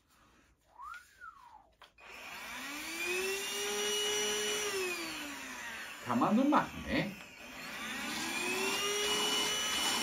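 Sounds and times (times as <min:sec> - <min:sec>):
short rising-falling whistle: 0:00.7 - 0:01.7
handheld vacuum motor whining: 0:01.8 - 0:10.0.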